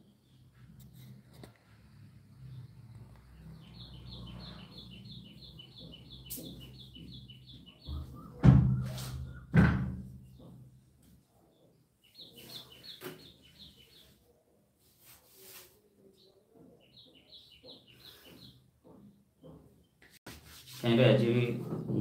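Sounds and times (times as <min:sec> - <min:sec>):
small bird chirping: 0:02.3 - 0:09.6, 0:11.4 - 0:14.2, 0:16.0 - 0:20.0
loud knocks: 0:09.5 - 0:10.7.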